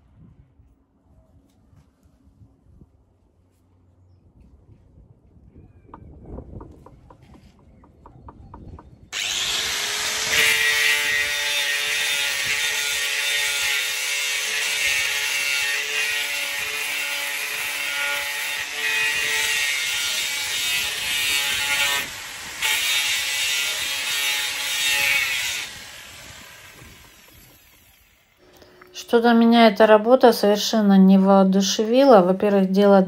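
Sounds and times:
angle grinder grinding metal: 9.1 - 29.1.

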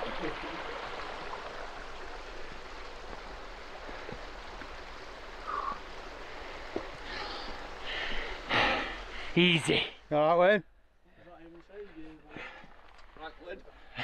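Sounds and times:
rustle: 0.0 - 10.4, 11.1 - 14.0
stream trickling over rocks: 0.0 - 14.0
faint footsteps: 3.0 - 5.6, 6.3 - 8.4, 11.2 - 13.9.

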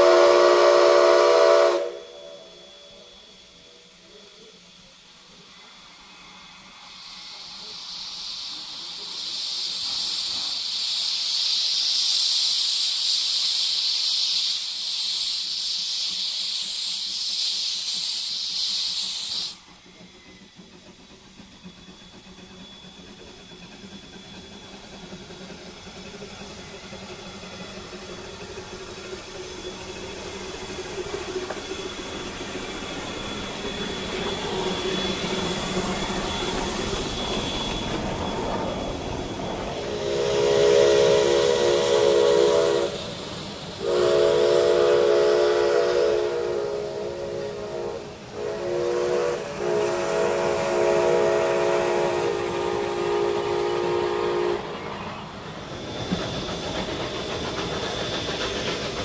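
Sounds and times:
steam whistle blasts: 0.0 - 3.8, 29.5 - 54.8
steam locomotive hissing: 0.0 - 59.0.

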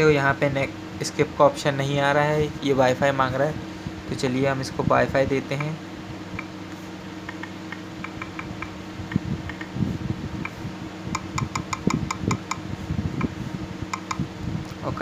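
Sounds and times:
phone keyboard clicks: 7.3 - 9.7, 11.1 - 12.6, 13.9 - 14.2.

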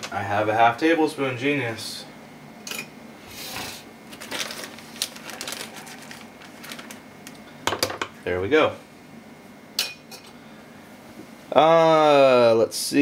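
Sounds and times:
plastic bag crinkling: 4.1 - 7.4.

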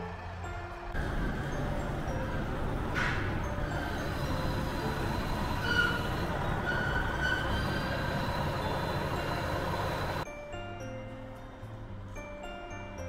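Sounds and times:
diesel engine idling: 0.0 - 10.2
faint tones: 0.0 - 10.2
high-pitched squeals: 0.0 - 10.2
station noise: 0.0 - 10.2.

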